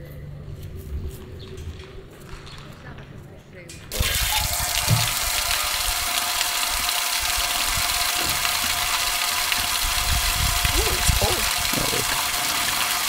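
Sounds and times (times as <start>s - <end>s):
water running into a container: 3.9s - 13.0s.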